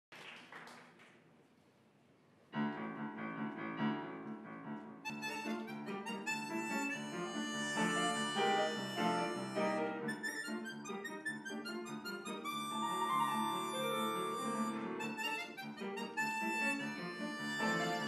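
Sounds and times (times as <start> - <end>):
upright piano: 2.5 - 10.6, 11.7 - 18.0
harmonica melody: 5.0 - 18.0.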